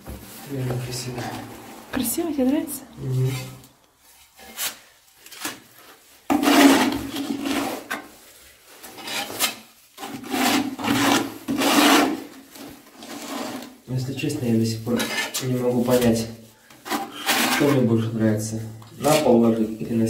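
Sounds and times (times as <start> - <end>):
adhesive scraping in plastic bucket: 6.3 - 8.1, 8.8 - 13.8, 16.7 - 18.0.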